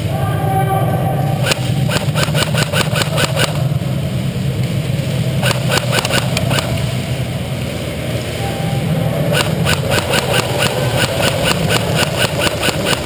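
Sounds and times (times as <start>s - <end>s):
steady low hum: 0.0s - 13.0s
airsoft guns firing: 1.5s - 3.6s.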